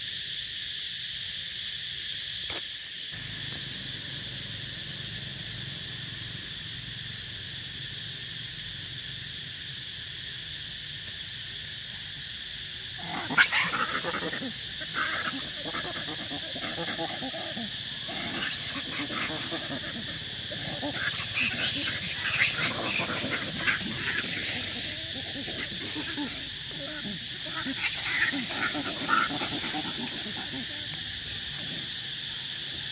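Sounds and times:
insects droning: 0:00.0 - 0:32.9
macaques screaming and squealing: 0:13.0 - 0:31.9.

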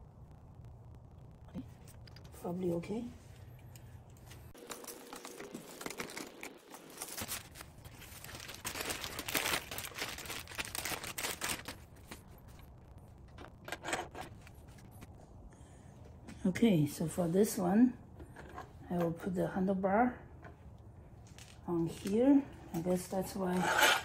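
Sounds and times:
plastic packaging crinkling and tearing: 0:04.6 - 0:13.6.

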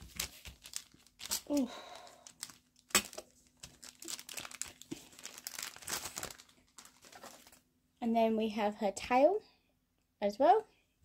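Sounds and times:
plastic bag crinkling: 0:00.0 - 0:07.6.

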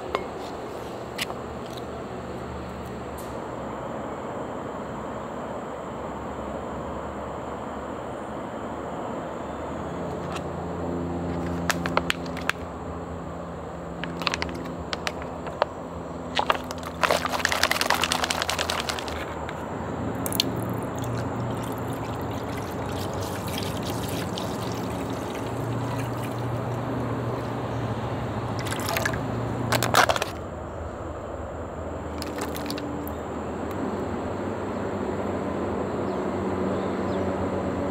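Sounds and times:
liquid pouring from a pouch: 0:14.0 - 0:15.2, 0:16.3 - 0:19.3, 0:20.2 - 0:27.6, 0:28.5 - 0:30.3, 0:32.1 - 0:32.8
plastic packaging crinkling: 0:14.0 - 0:15.6, 0:16.3 - 0:19.6, 0:28.6 - 0:30.4, 0:32.1 - 0:32.8.

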